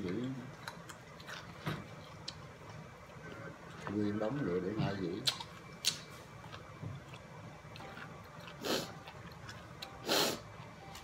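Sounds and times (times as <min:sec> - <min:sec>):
person sniffing: 0:08.6 - 0:09.0, 0:10.0 - 0:10.4.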